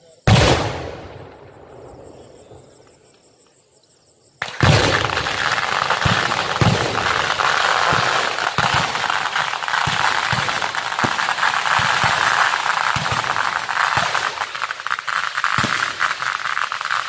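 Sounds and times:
firework bang echoing: 0:04.4 - 0:16.6
fireworks crackling hiss: 0:04.4 - 0:17.0.

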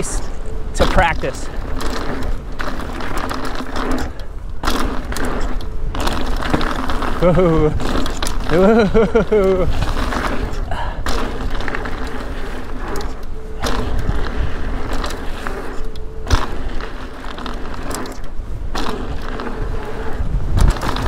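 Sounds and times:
bike tyres rolling on dirt: 0:00.0 - 0:21.0
wheels knocking over bumps: 0:00.0 - 0:21.0.

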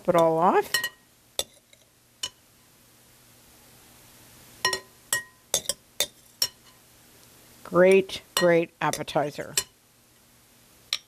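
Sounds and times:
metal spoon clinking against glass: 0:00.7 - 0:01.6, 0:04.7 - 0:06.6.

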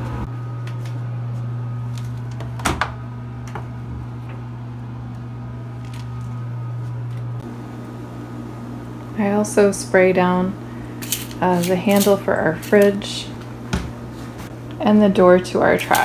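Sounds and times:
low electrical hum: 0:00.0 - 0:16.0
washing machine door click: 0:02.3 - 0:03.7.

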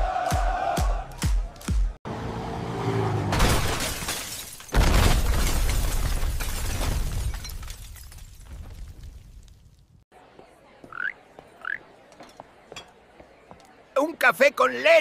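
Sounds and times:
crash of metal and glass: 0:03.3 - 0:09.0
crackling and falling debris: 0:03.4 - 0:10.0.

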